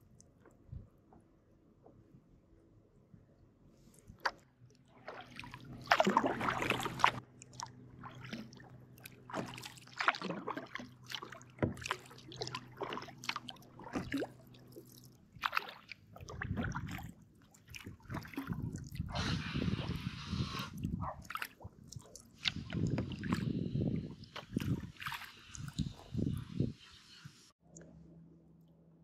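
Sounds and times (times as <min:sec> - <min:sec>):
water splashes and drips: 0:04.0 - 0:26.9
kayak paddle strokes in water: 0:04.0 - 0:27.5.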